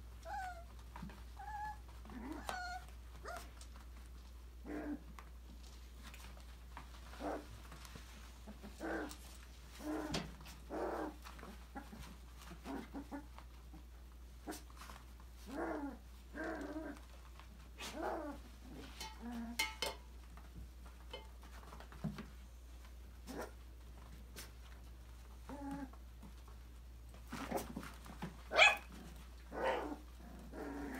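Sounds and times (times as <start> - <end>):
puppies whining and yipping: 0.1 - 3.7.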